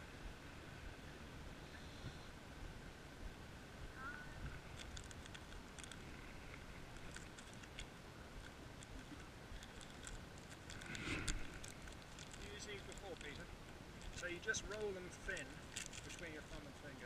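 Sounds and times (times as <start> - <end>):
wrapper rustle: 9.0 - 13.4, 14.0 - 16.6
plastic wrapper crinkling and tearing: 9.6 - 13.4, 14.0 - 16.3.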